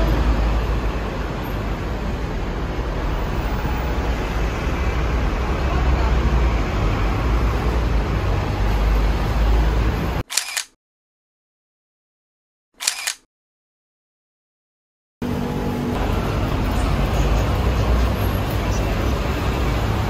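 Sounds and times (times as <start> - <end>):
road traffic rumble: 0.0 - 10.7, 15.2 - 20.0.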